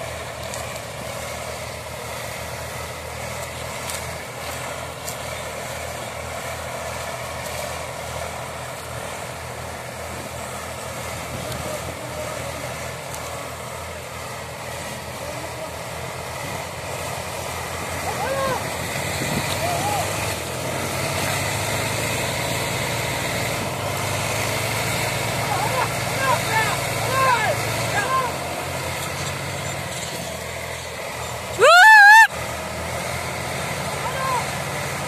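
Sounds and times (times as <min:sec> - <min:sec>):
tractor diesel engine running: 0:00.0 - 0:35.0.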